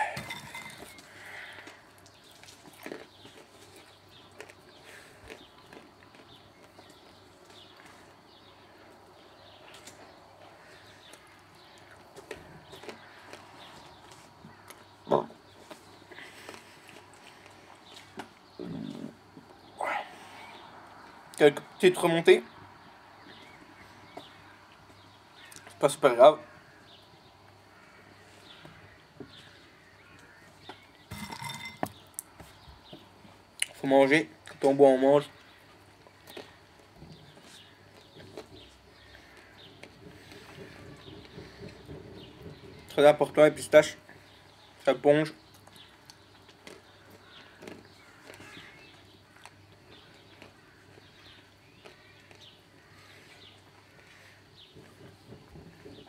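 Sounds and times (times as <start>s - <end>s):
faint birds chirping: 0.0s - 56.0s.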